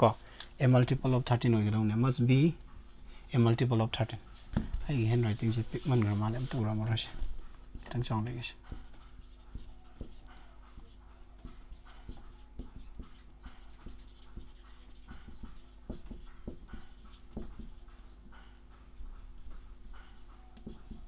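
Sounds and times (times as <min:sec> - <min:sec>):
low electrical hum: 0:00.0 - 0:21.0
marker scratching on whiteboard: 0:07.7 - 0:18.5, 0:19.4 - 0:21.0.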